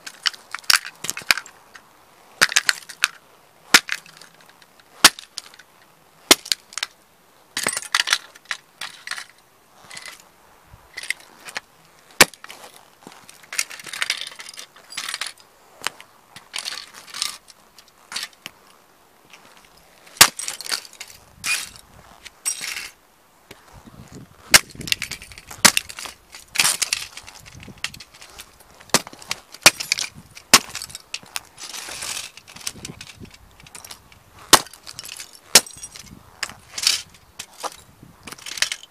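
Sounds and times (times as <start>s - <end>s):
fragments crunching under soles: 0.0s - 7.0s, 10.9s - 38.9s
plastic cracking under boots: 23.5s - 38.9s.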